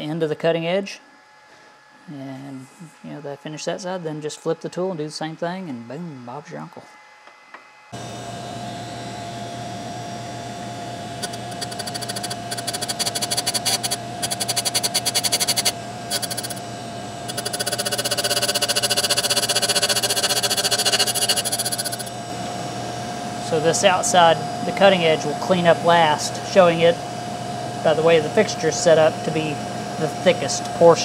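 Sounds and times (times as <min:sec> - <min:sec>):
grinder motor humming: 0:06.8 - 0:31.0
grinding wheel rasping on metal: 0:08.8 - 0:22.3.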